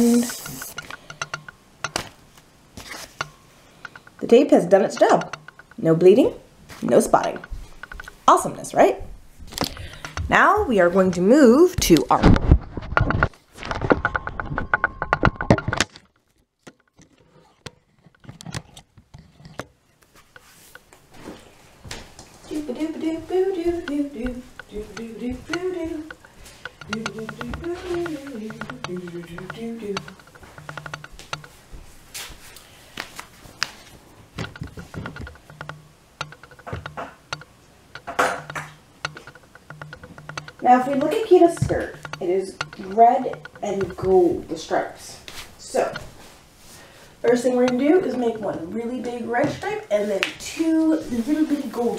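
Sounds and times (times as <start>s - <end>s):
camera handling rubbing and knocks: 12.3s - 20.9s, 25.5s - 31.6s, 33.1s - 44.3s
camera clicks and taps on floor: 23.8s - 31.6s, 34.4s - 44.3s.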